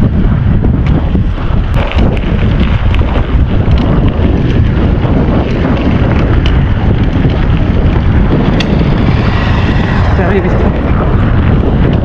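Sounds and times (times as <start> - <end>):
tyres rumbling on gravel: 0.0 - 12.0
wind buffeting microphone: 0.0 - 12.0
stones ticking: 0.8 - 10.1.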